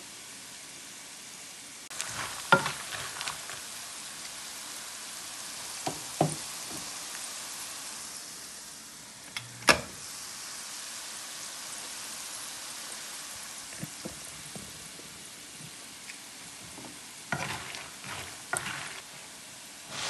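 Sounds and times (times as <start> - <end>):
peanuts sizzling in oil: 0.0 - 20.0
spatula knocking on pan: 2.5 - 3.2, 5.8 - 6.9.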